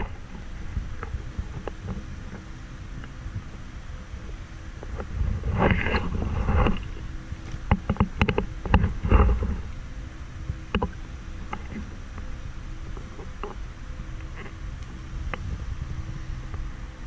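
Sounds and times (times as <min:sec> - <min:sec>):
sharp clicks and knocks: 0:04.8 - 0:09.6, 0:10.6 - 0:12.3.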